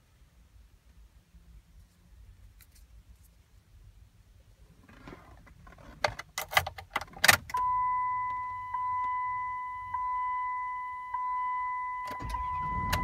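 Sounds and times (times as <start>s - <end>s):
dashboard warning chime: 7.5s - 13.0s.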